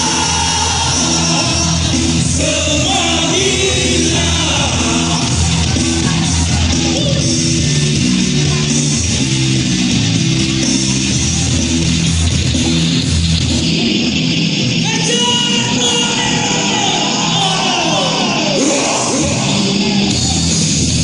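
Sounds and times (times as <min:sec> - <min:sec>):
person singing: 0:00.0 - 0:06.2
live rock band playing: 0:00.0 - 0:17.6.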